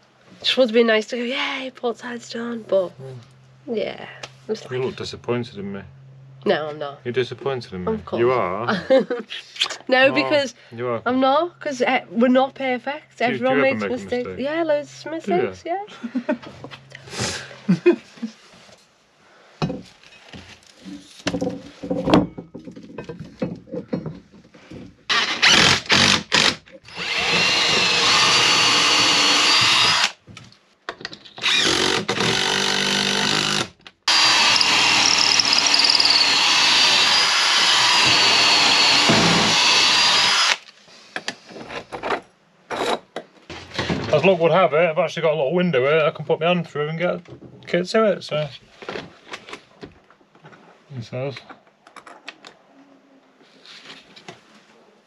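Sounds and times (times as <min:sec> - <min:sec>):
cordless drill into timber: 0:25.1 - 0:30.2, 0:31.4 - 0:40.6.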